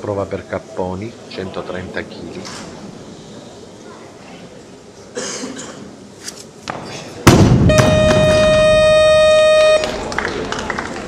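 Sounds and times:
electronic buzzer tone: 7.7s - 9.9s.

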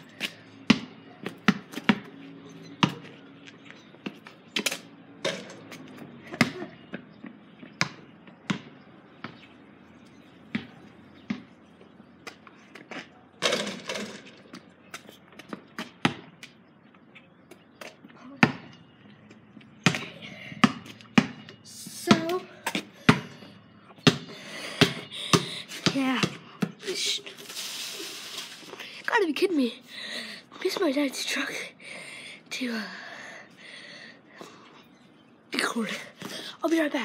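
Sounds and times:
basketball bouncing on concrete: 0.2s - 3.2s, 5.3s - 9.6s, 10.3s - 16.5s, 17.8s - 18.8s, 19.6s - 27.0s.

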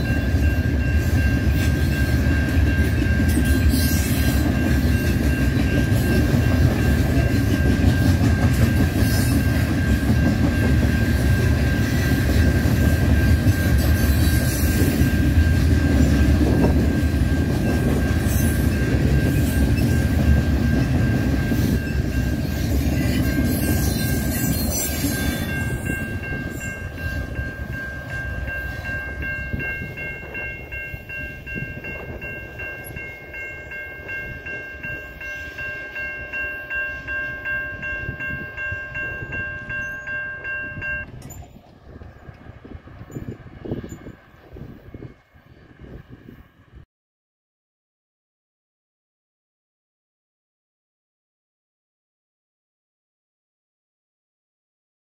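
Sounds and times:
steady high ringing tone: 0.0s - 41.7s
freight train cars rumbling: 0.0s - 46.8s.

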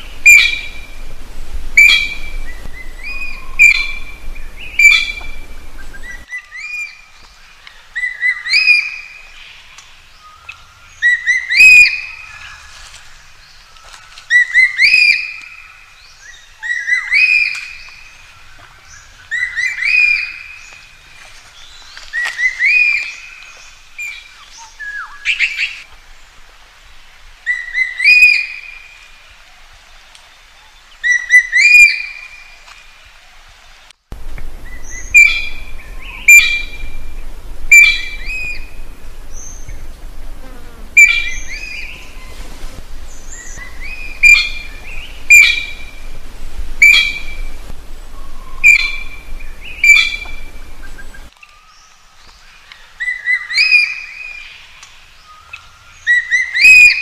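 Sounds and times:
magpie calling: 0.1s - 0.8s, 1.8s - 6.3s, 34.6s - 39.8s, 41.0s - 42.4s, 43.1s - 46.2s, 46.8s - 47.6s, 48.2s - 51.3s
low steady hum: 34.1s - 51.3s.

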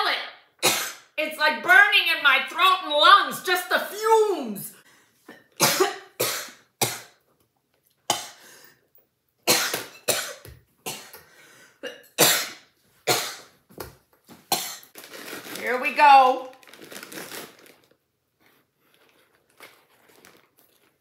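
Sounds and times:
woman coughing: 5.6s - 7.2s, 9.5s - 11.2s, 11.8s - 13.5s, 14.5s - 14.8s.

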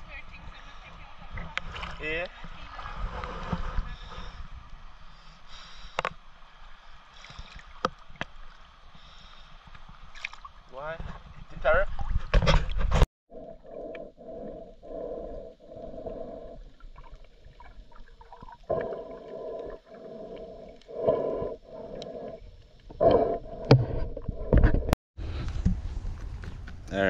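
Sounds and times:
water splashing: 0.0s - 4.4s, 6.7s - 13.8s, 15.6s - 24.0s
muffled underwater water noise: 0.0s - 24.9s.

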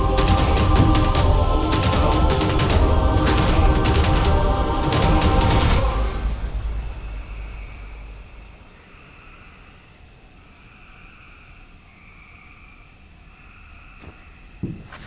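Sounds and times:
music track: 0.0s - 8.7s
crickets chirping: 5.8s - 15.0s
faint insect trill: 6.8s - 14.6s.

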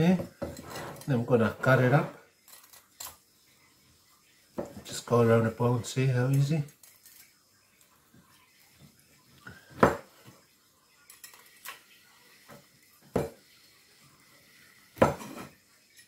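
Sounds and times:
knife hitting wooden board: 15.0s - 15.5s.

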